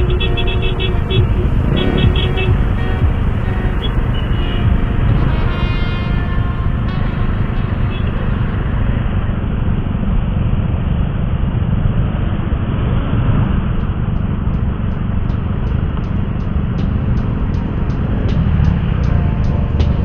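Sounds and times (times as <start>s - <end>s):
road noise: 0.0s - 20.0s
traffic engine noise: 0.0s - 20.0s
wind buffeting microphone: 0.0s - 20.0s.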